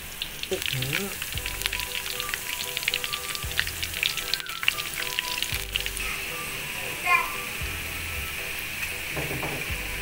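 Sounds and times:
oil crackling pops: 0:00.0 - 0:06.2
fritters deep-frying in oil: 0:00.0 - 0:10.0.

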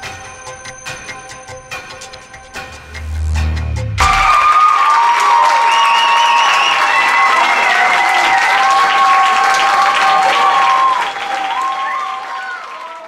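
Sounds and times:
audience applauding: 0:04.0 - 0:13.0
audience cheering: 0:04.0 - 0:13.0.

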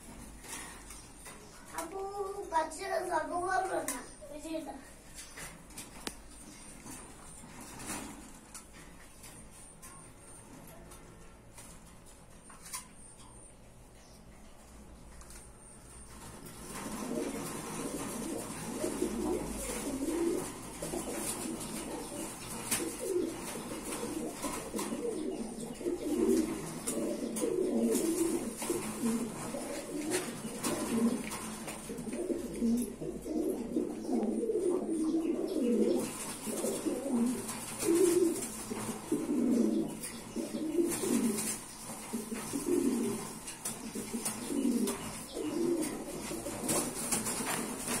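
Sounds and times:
pigeons cooing: 0:15.0 - 0:48.0.

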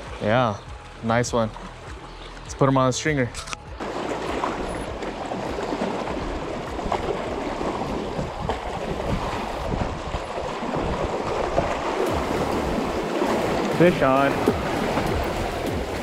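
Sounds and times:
water lapping against rocky shore: 0:03.2 - 0:16.0
wind on microphone: 0:05.4 - 0:16.0.

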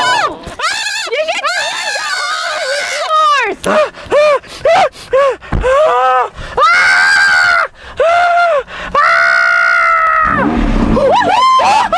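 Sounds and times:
man screaming with excitement: 0:11.0 - 0:11.9.

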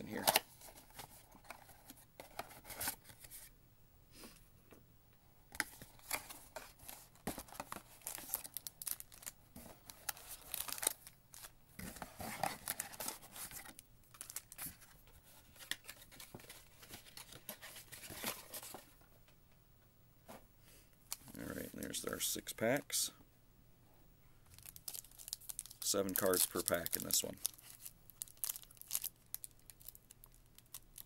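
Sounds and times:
wrappers crinkling: 0:06.8 - 0:11.5, 0:12.2 - 0:14.9, 0:24.5 - 0:31.0.

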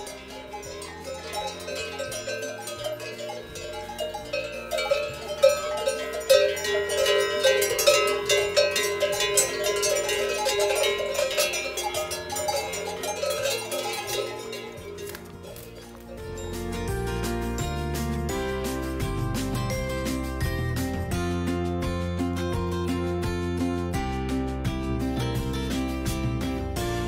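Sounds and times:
cowbells clanking: 0:00.0 - 0:21.2.

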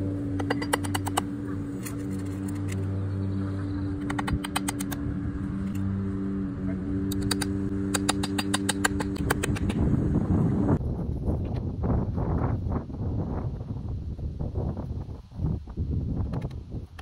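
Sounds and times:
steady low hum: 0:00.0 - 0:16.9
hammer tapping nails into wood: 0:00.4 - 0:01.3, 0:04.0 - 0:05.0, 0:07.1 - 0:09.8.

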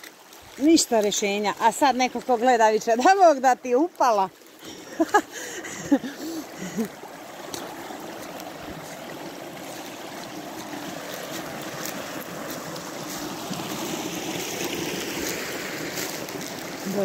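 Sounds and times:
stream running over stones: 0:00.0 - 0:17.0
footsteps on dry leaves: 0:06.2 - 0:17.0.

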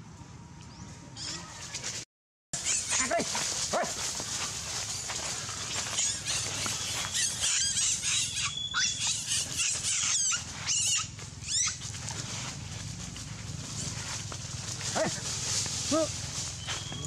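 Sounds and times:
monkey screaming: 0:02.6 - 0:04.1, 0:05.4 - 0:12.0.

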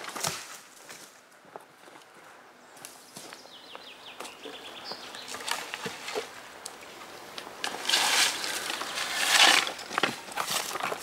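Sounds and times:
footsteps on forest floor: 0:02.8 - 0:06.4, 0:07.4 - 0:11.0
brush sweeping across concrete: 0:07.8 - 0:09.9.

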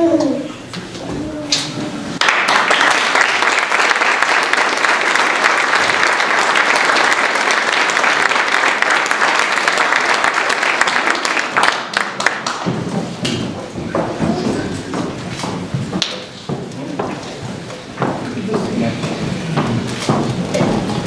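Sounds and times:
audience applauding: 0:02.2 - 0:13.2.

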